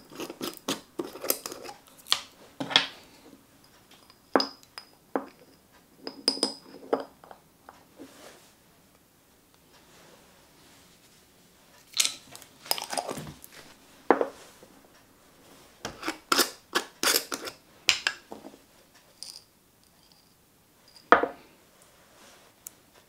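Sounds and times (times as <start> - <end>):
glass jars knocking on wood: 4.4 - 5.4.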